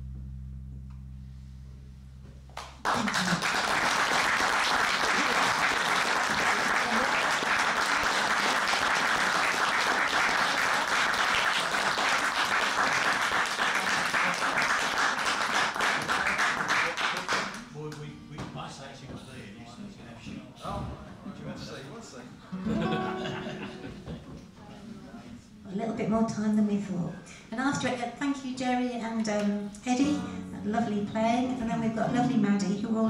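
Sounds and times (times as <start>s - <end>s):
audience applause: 2.6s - 18.0s.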